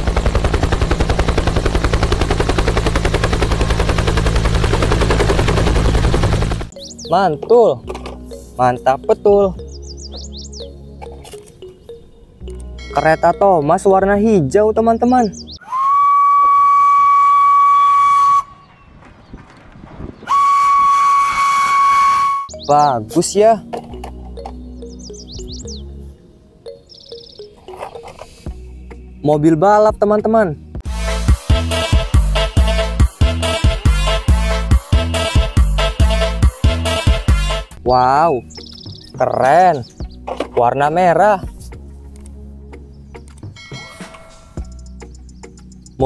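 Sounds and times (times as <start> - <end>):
helicopter rotor chopping: 0.0 - 6.8
steam locomotive whistle blasts: 15.6 - 18.6, 20.3 - 22.5.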